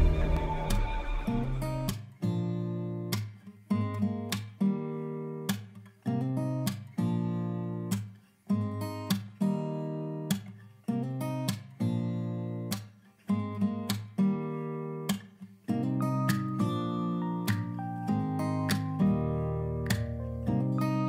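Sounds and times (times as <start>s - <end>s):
acoustic guitar strumming chords: 0.0s - 3.2s, 13.4s - 21.0s.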